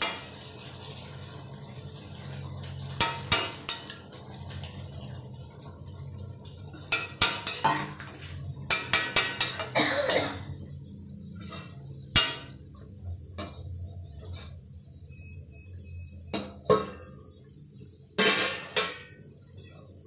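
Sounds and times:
metal spatula scraping pot: 0:11.4 - 0:12.5.

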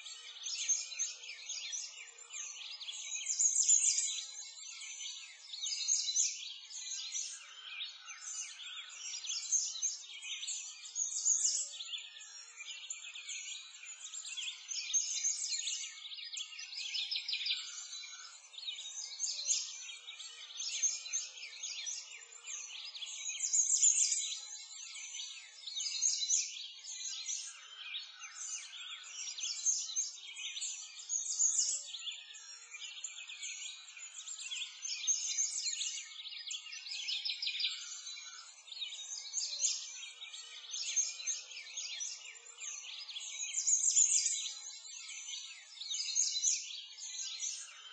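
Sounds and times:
songbirds chirping and twittering: 0:00.0 - 0:47.9.

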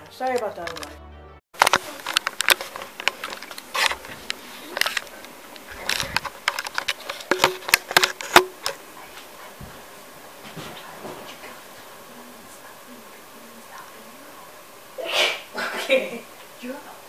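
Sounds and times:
camera handling knocks and clicks: 0:05.8 - 0:08.8.

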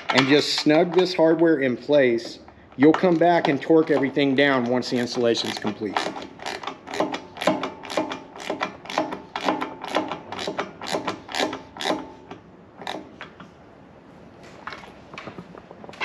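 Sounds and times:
ratcheting wrench clicking: 0:02.1 - 0:13.1.

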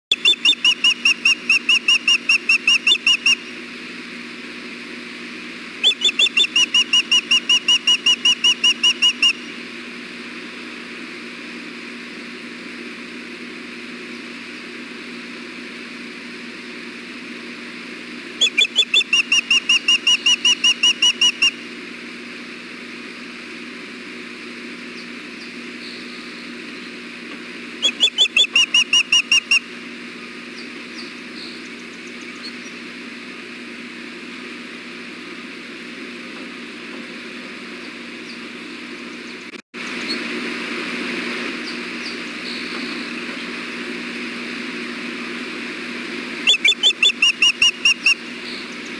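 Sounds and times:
osprey whistled chirps: 0:00.1 - 0:03.5, 0:05.8 - 0:09.6, 0:18.4 - 0:21.6, 0:27.8 - 0:29.6, 0:46.4 - 0:48.9
steady low hum: 0:00.1 - 0:48.9.

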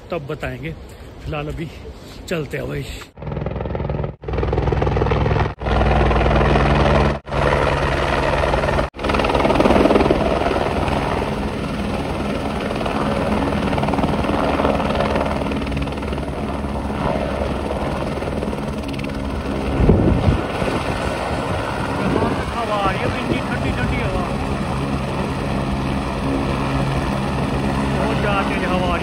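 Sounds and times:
helicopter drone: 0:03.1 - 0:29.0.

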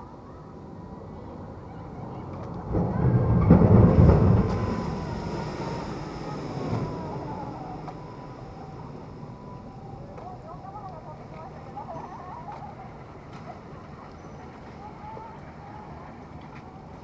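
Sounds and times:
boat engine noise: 0:00.0 - 0:17.0
water splashing: 0:02.6 - 0:11.8.

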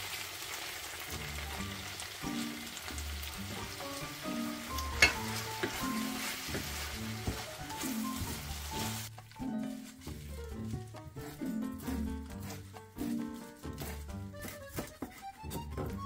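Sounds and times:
food sizzling in frying pan: 0:00.0 - 0:13.2
wooden spatula stirring: 0:03.5 - 0:16.0.

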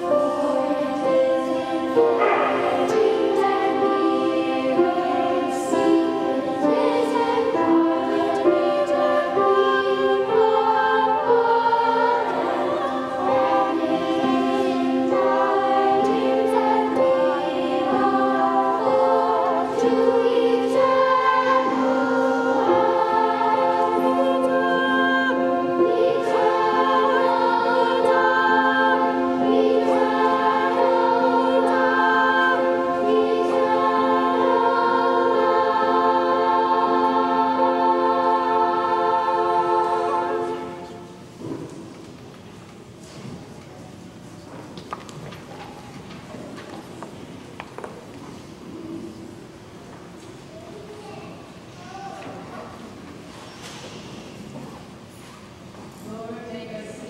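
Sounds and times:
children's choir singing: 0:00.0 - 0:42.2.

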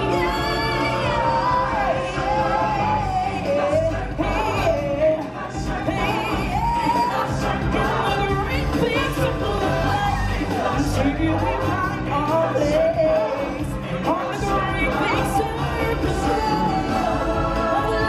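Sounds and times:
band bass: 0:00.0 - 0:18.0.

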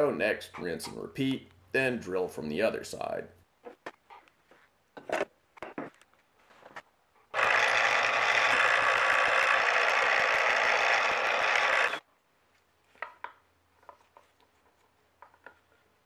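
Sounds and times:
milling machine drilling wood: 0:07.4 - 0:12.0.

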